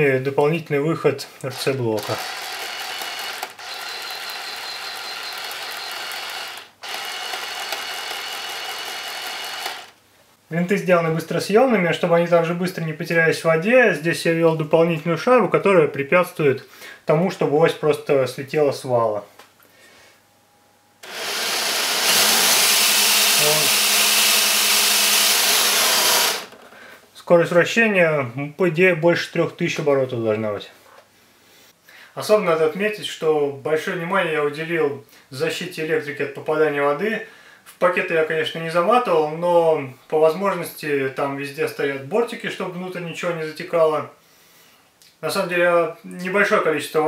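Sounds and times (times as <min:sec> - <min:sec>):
plastic gears whirring: 0:01.5 - 0:10.0, 0:21.0 - 0:26.7.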